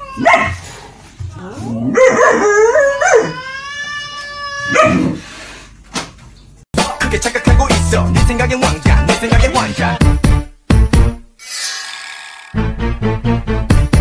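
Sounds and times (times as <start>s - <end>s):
dog howling and whining: 1.4s - 3.8s.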